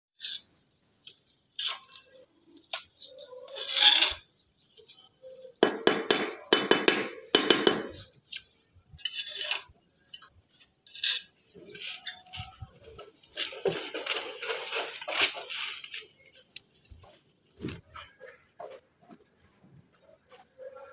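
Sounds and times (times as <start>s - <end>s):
tool scraping hard surface: 9.0s - 16.4s.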